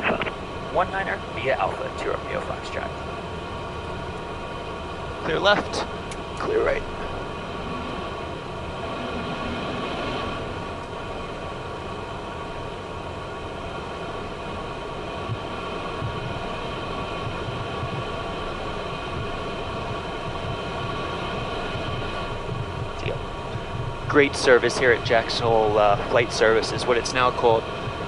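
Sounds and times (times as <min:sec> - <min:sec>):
jet engines idling: 0:00.0 - 0:28.0.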